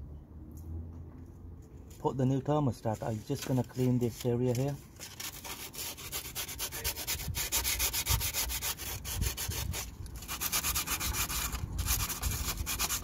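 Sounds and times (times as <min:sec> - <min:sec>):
sandpaper rubbing on metal: 0:02.8 - 0:13.0.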